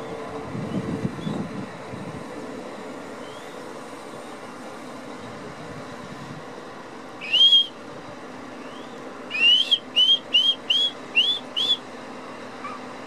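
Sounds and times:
person whistling: 0:09.4 - 0:11.8.

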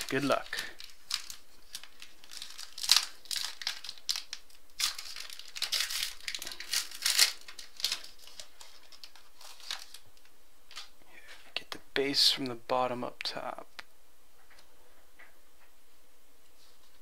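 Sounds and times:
foil wrapper crinkling and tearing: 0:00.0 - 0:10.1.

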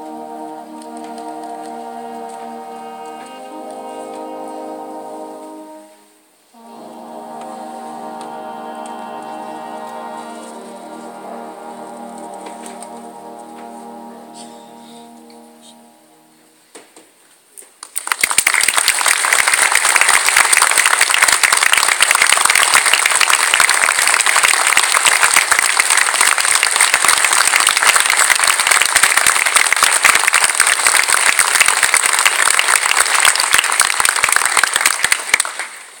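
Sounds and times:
audience applauding: 0:17.8 - 0:36.0.

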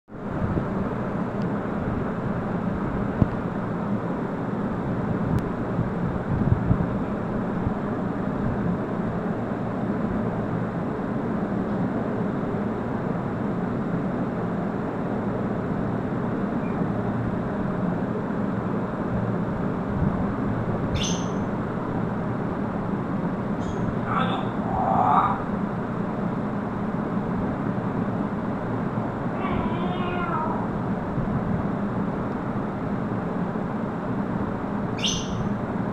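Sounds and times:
rumbling background noise: 0:00.1 - 0:35.9
parrot high-pitched call: 0:21.0 - 0:21.5, 0:23.6 - 0:25.4, 0:29.4 - 0:30.7, 0:35.0 - 0:35.5.

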